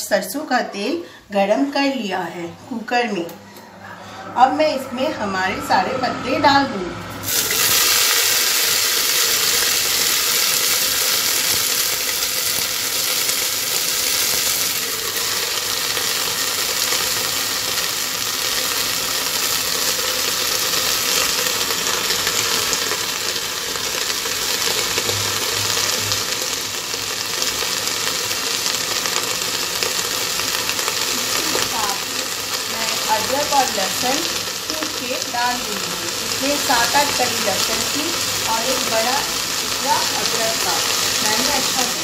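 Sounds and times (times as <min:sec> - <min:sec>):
leaves sizzling in hot oil: 0:07.2 - 0:42.0.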